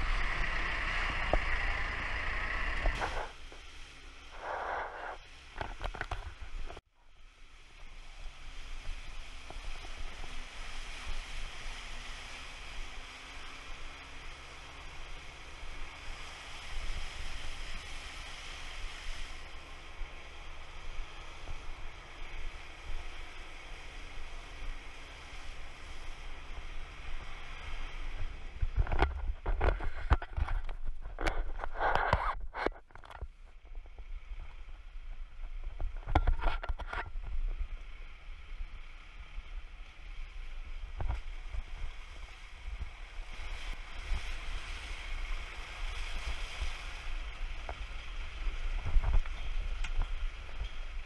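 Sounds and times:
low engine rumble: 0.0s - 51.0s
wind buffeting camera: 40.6s - 51.0s.

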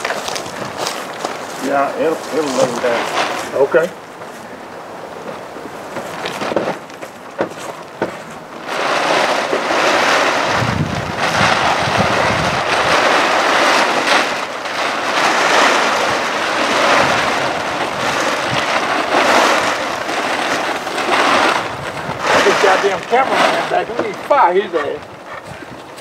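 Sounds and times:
plastic tarp rustling and flapping: 0.0s - 4.5s, 5.2s - 26.0s
wind buffeting microphone: 7.3s - 26.0s.

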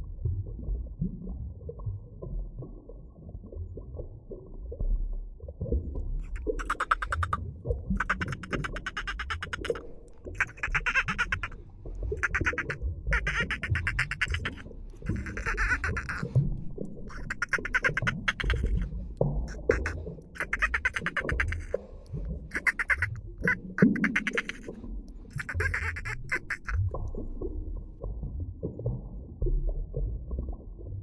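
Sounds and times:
low rumble of water: 0.0s - 31.0s
dolphin clicks underwater: 6.2s - 24.7s.

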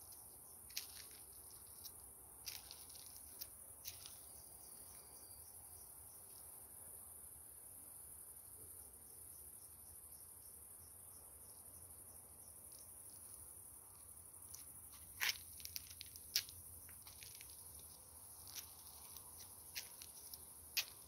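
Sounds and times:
sharp clicks and scuffs: 0.0s - 4.2s, 14.5s - 21.0s
crickets chirping: 0.0s - 21.0s.

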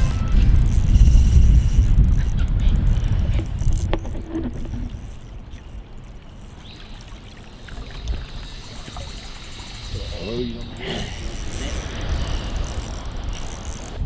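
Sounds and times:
low wind rumble: 0.0s - 6.0s
water washing and lapping: 0.0s - 14.0s.

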